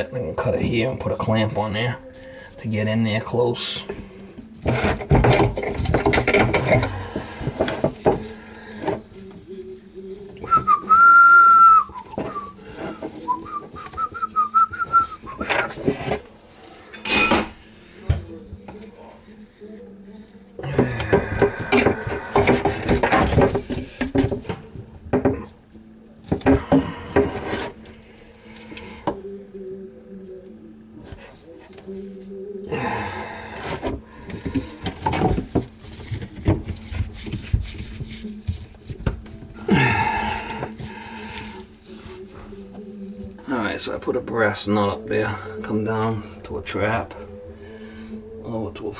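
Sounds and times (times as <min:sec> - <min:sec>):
plastic fittings knocking and clacking: 0:04.6 - 0:09.1, 0:20.8 - 0:25.5
man whistling high note: 0:10.4 - 0:12.6.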